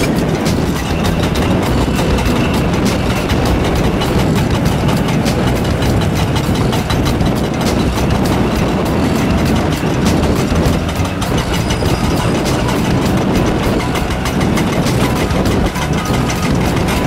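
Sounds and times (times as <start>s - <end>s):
excavator diesel engine: 0.0s - 17.0s
hydraulic ripper hammering rock: 0.0s - 17.0s.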